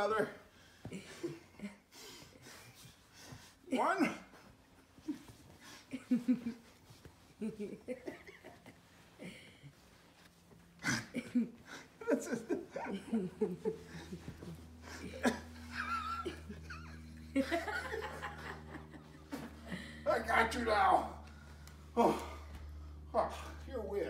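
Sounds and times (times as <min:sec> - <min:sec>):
people chuckling: 0:04.8 - 0:20.0.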